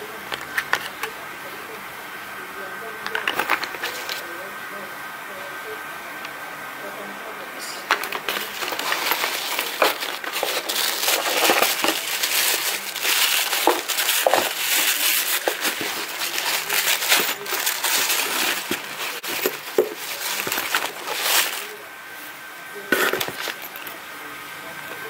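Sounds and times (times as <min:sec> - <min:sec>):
packing paper crinkling: 0:03.1 - 0:04.2, 0:07.8 - 0:21.9, 0:23.0 - 0:23.9.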